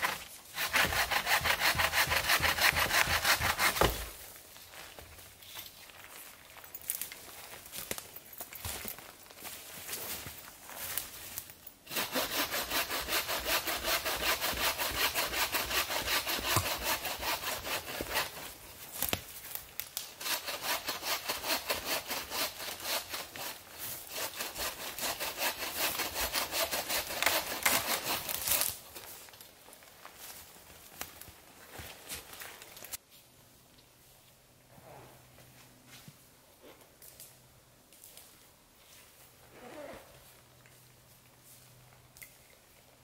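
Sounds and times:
bow saw cutting log: 0.0s - 4.1s, 11.9s - 18.5s, 20.2s - 28.6s.

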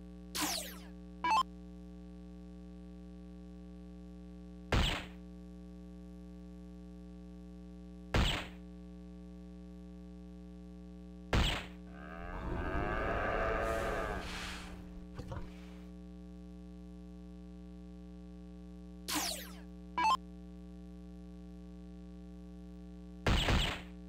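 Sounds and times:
dartboard electronic sound effect: 0.4s - 1.4s, 19.1s - 20.2s.

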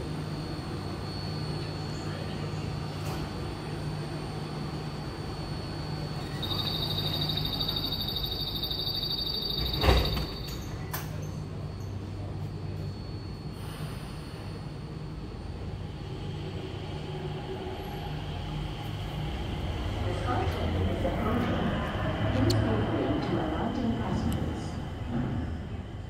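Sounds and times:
low hum of train: 0.0s - 26.0s
door closing warning tone: 6.3s - 11.3s.

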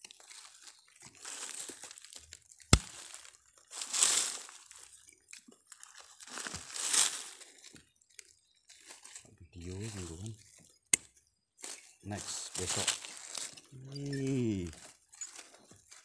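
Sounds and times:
hand raking dry leaves and soil: 0.1s - 5.0s, 5.7s - 7.7s, 8.8s - 10.4s, 11.6s - 15.5s.

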